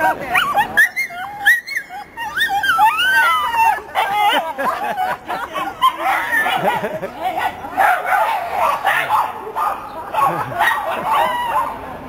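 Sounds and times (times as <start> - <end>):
dogs whining and yipping: 0.3 - 7.0.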